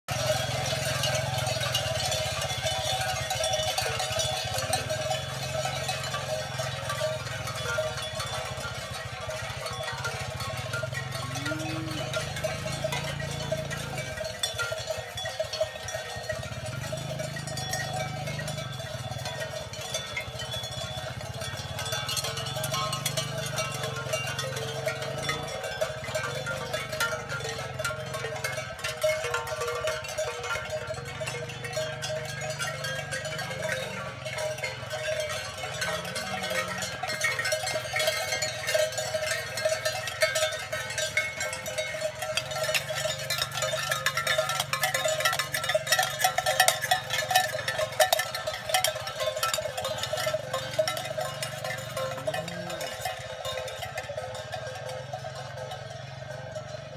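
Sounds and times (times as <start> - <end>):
hooves clattering on asphalt: 0.0 - 56.9
cow bells clanking: 0.1 - 56.9
cow bawling: 11.0 - 14.2, 35.5 - 38.1.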